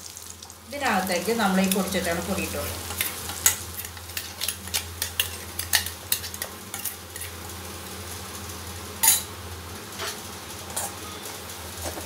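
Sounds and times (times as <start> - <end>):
oil sizzling: 0.0 - 12.0
spoon clinking and scraping pan: 2.8 - 7.4.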